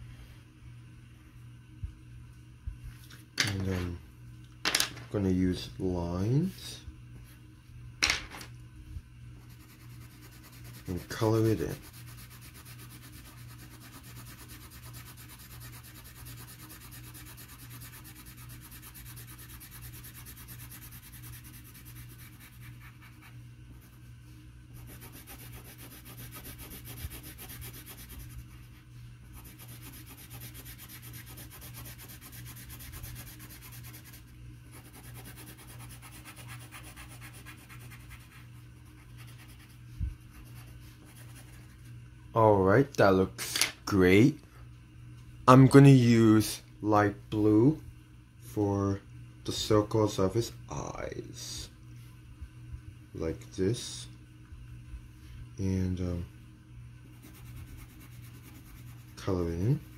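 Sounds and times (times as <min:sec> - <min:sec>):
pencil shading on paper: 0:09.4 - 0:24.0, 0:24.8 - 0:28.4, 0:29.4 - 0:39.7, 0:57.1 - 0:59.2.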